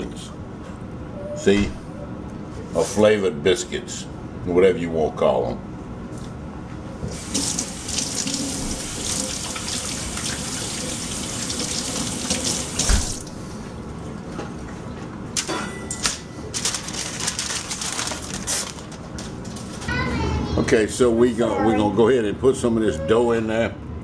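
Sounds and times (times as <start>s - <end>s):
tap running into sink: 7.1s - 13.3s
aluminium foil crackling: 16.5s - 19.9s.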